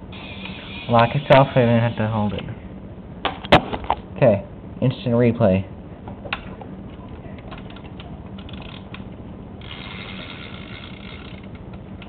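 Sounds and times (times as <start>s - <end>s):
steady hiss: 0.0s - 2.5s
plastic ratchet and gears clicking: 8.4s - 9.0s, 9.6s - 11.8s.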